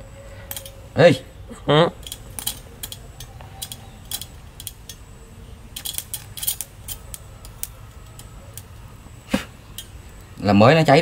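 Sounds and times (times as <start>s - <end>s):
welder sparking crackle: 2.0s - 10.6s.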